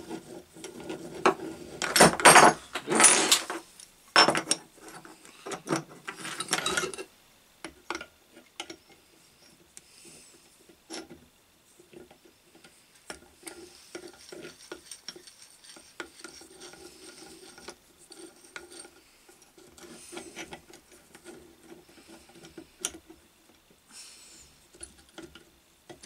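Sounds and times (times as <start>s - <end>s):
metal clinking and scraping: 0.0s - 3.6s, 4.2s - 7.1s, 12.6s - 23.0s.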